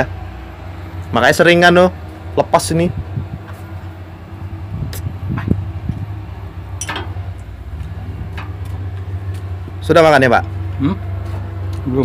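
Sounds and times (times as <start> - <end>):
engine idling: 0.0 - 12.0
knocks and clinks: 6.8 - 7.2.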